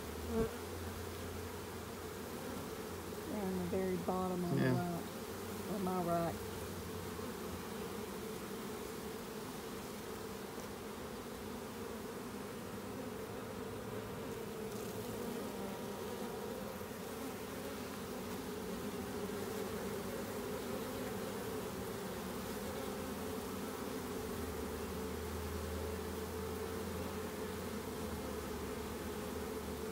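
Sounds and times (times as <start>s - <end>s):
bees buzzing: 0.0s - 29.9s.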